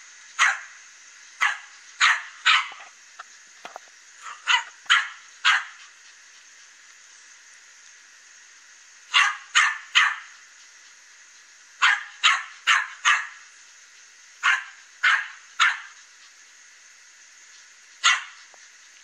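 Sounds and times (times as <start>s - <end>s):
small dog barking: 0.4s - 0.7s, 1.4s - 2.9s, 4.2s - 5.9s, 9.1s - 10.4s, 11.8s - 13.4s, 14.4s - 16.0s, 18.0s - 18.5s.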